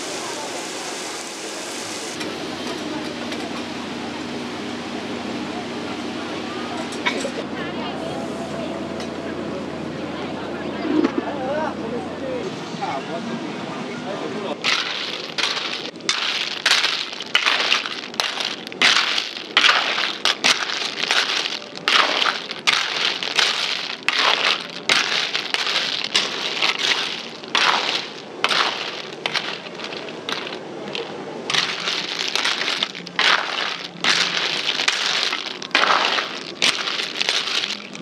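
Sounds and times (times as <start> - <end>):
shells rattling in metal wok: 14.6 - 38.0.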